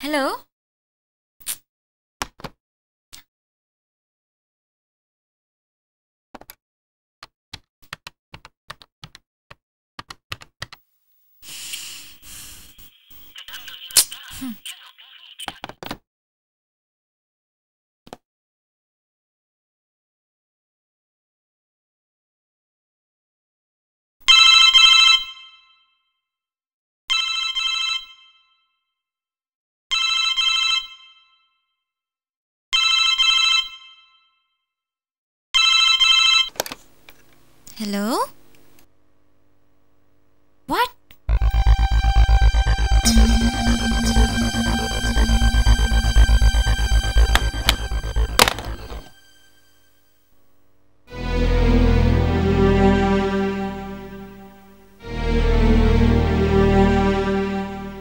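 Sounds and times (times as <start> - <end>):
telephone ringing: 27.1 - 28.3, 29.9 - 31.2, 32.8 - 33.9, 35.6 - 36.5.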